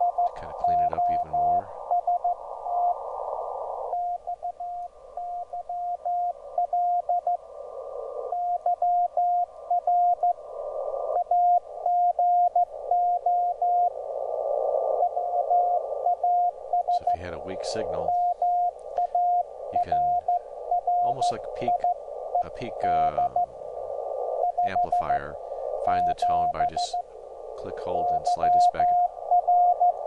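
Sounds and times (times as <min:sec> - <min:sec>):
morse code tone: 0:00.0 - 0:02.4, 0:15.6 - 0:23.5
radio static hiss: 0:00.0 - 0:30.0.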